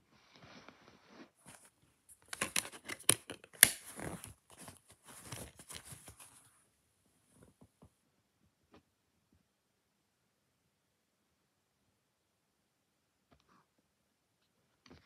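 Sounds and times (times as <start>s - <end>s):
plastic case crackling and clicking: 2.2s - 6.1s.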